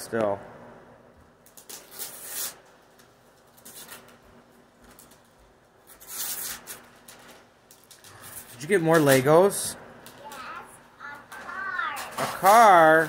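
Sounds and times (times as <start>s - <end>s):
wrapping paper rustling and tearing: 1.4s - 9.4s, 11.3s - 13.0s.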